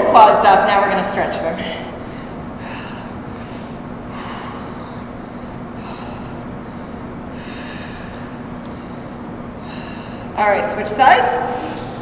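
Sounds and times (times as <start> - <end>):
steady low hum: 0.0 - 12.0
person breathing: 1.6 - 10.4, 11.4 - 12.0.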